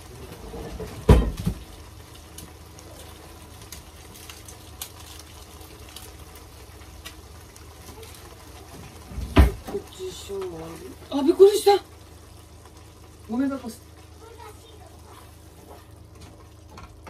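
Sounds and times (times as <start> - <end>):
knock: 1.1 - 1.6.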